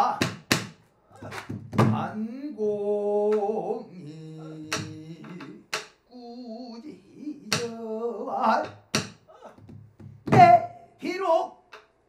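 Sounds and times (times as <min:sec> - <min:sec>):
man singing long notes: 0:01.9 - 0:08.8.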